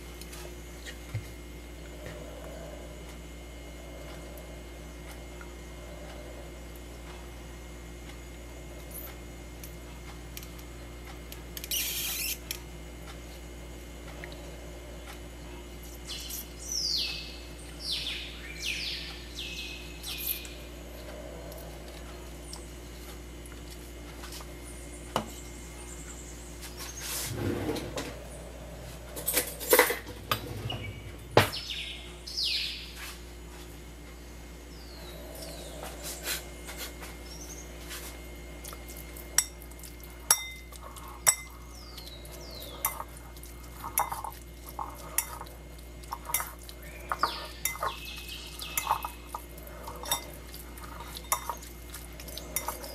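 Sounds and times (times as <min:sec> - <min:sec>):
steady low hum: 0:00.0 - 0:52.9
bowl and utensils clinking: 0:40.3 - 0:41.6, 0:42.6 - 0:52.9.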